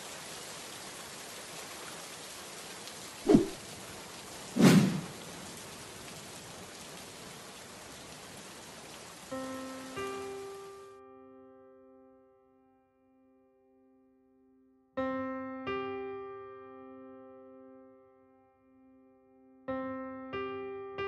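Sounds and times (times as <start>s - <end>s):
steady rain falling: 0.0s - 11.0s.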